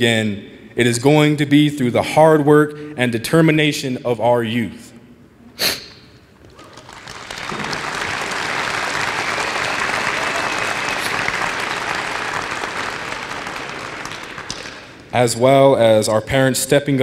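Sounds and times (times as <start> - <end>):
audience applauding: 6.4 - 15.1.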